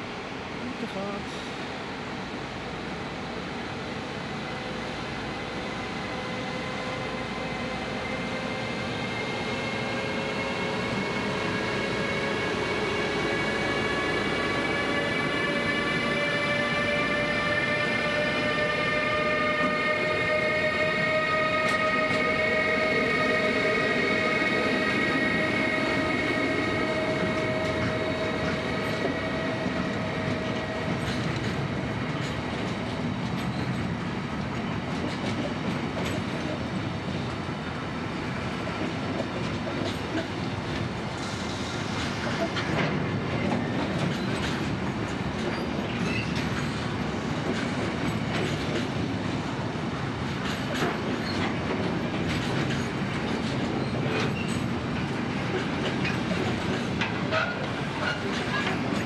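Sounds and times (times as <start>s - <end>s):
train wheels rolling rush: 0.0s - 59.0s
whining locomotive tones: 3.8s - 35.0s.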